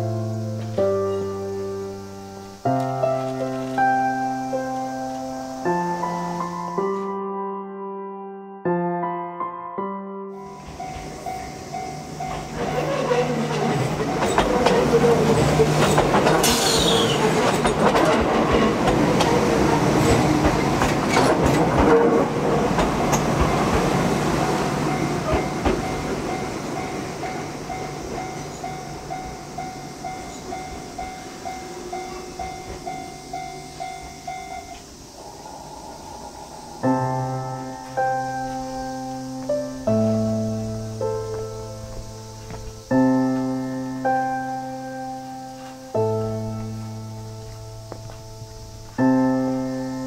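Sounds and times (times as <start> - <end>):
music: 0.0 - 12.6, 24.8 - 50.0
crossing warning bell ringing: 10.4 - 17.7, 23.0 - 36.9
train wheels clicking over rail joints: 10.6 - 36.8.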